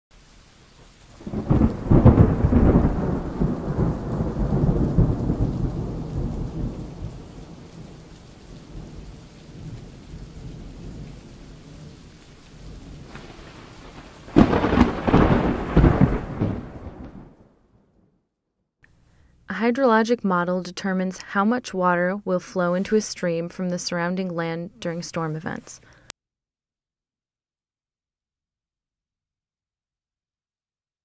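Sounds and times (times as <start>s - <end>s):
steady rain: 0.1s - 17.6s
sudden thunder clap: 1.2s - 7.3s, 12.9s - 17.6s
thunder rumbling: 1.2s - 18.1s.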